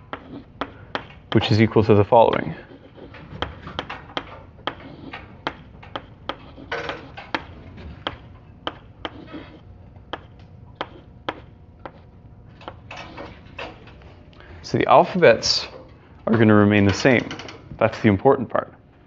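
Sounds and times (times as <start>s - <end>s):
chalk scraping on blackboard: 0.0s - 0.7s, 1.4s - 9.6s, 10.2s - 12.0s
chalk tapping on blackboard: 0.0s - 12.1s.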